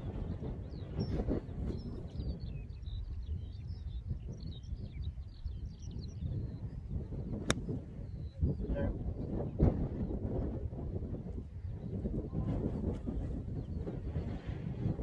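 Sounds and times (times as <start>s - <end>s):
wind rumbling on microphone: 0.0s - 15.0s
small birds chirping: 0.4s - 10.2s
golf club striking ball: 7.4s - 7.8s.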